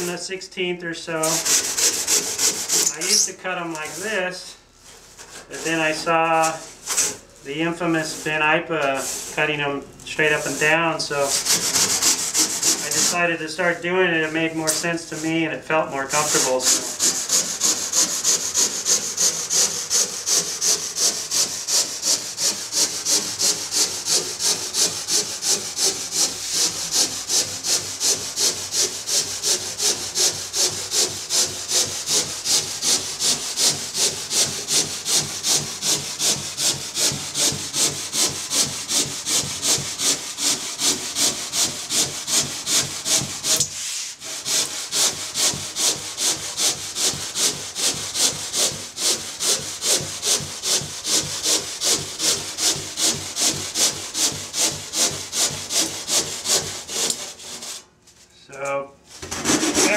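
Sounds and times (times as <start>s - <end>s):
handsaw cutting foam: 1.1s - 57.9s, 59.1s - 59.9s.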